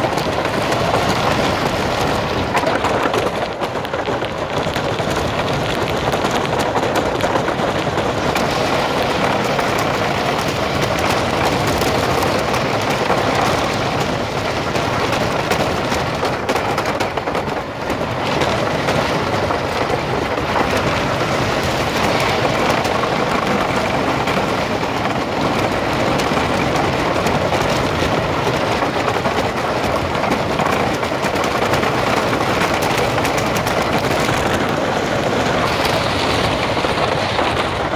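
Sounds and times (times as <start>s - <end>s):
roller coaster rumbling on track: 0.0s - 37.9s.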